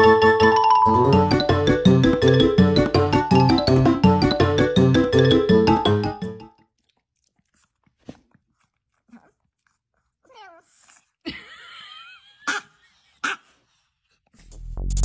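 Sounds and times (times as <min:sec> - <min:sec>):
dog chewing crunches: 0:06.5 - 0:10.1.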